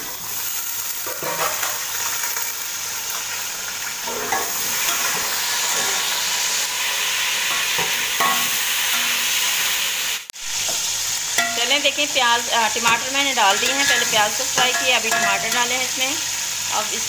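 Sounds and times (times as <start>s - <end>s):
onions and tomatoes sizzling in oil: 0.0s - 17.0s
metal spoon stirring in pot: 12.8s - 15.8s.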